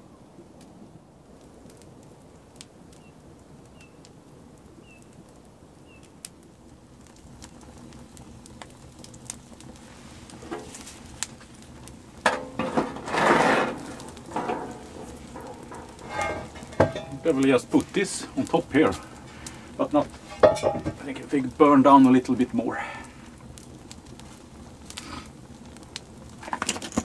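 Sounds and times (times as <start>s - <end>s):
wood fire crackling: 0.0s - 27.0s
metal grill grate clattering: 10.4s - 10.9s, 12.2s - 18.2s, 20.2s - 21.1s.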